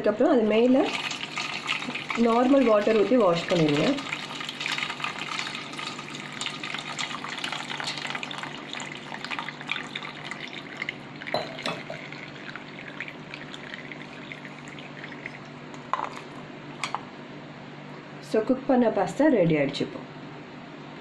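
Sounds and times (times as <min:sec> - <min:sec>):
water pouring and splashing: 0:00.8 - 0:16.4
water dripping: 0:00.9 - 0:15.5.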